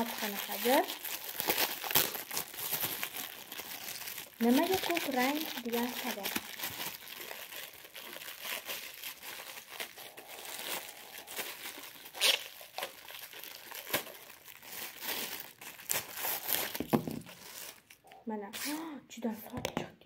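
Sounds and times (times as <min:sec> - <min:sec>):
plastic packaging crinkling: 0:00.0 - 0:18.8.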